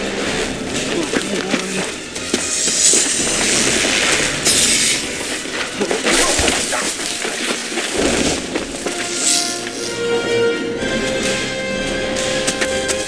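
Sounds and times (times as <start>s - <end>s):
crashes and smashing: 2.7s - 9.8s.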